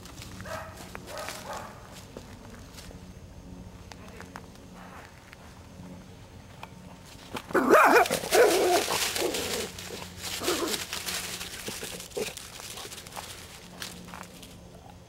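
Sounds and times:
dry leaves crackling: 0.0 - 4.4, 7.0 - 15.0
dog barking: 0.4 - 1.8, 7.6 - 8.8.

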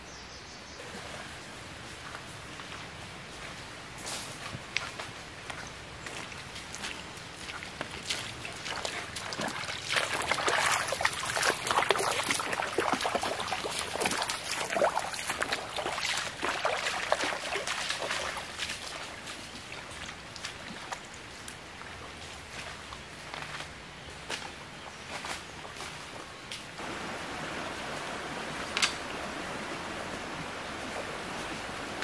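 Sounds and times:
footsteps splashing through a stream: 0.8 - 32.0
trickle of running water: 7.4 - 21.0.

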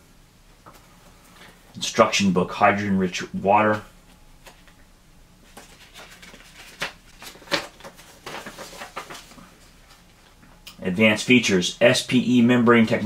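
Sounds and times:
paper leaflet rustling and crackling: 5.4 - 10.4.

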